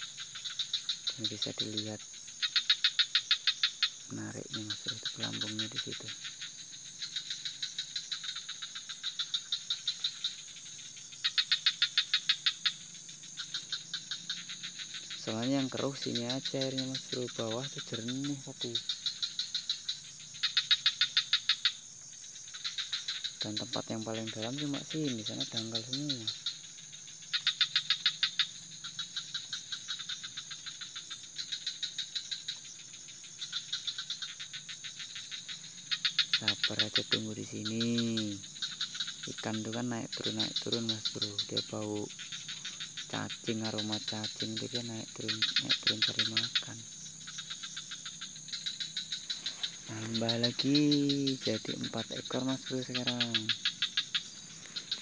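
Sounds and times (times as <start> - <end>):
high-pitched insect trill: 0.0 - 55.0
rapid chirps: 22.6 - 29.7, 33.0 - 55.0.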